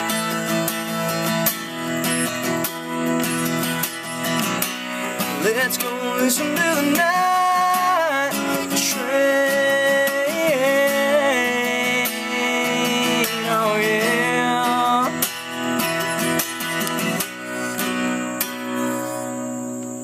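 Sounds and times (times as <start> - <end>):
acoustic guitar strumming: 0.0 - 20.0
person singing wordless vocal: 5.4 - 15.3.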